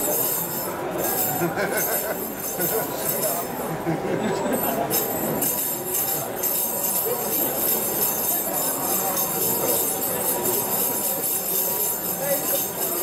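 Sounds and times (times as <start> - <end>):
crowd murmuring: 0.8 - 13.0
high metallic jingling: 4.6 - 13.0.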